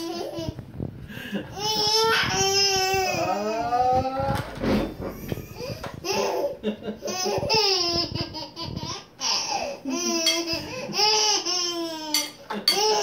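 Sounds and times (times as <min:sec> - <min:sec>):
baby laughing: 0:00.0 - 0:00.6, 0:05.6 - 0:13.0.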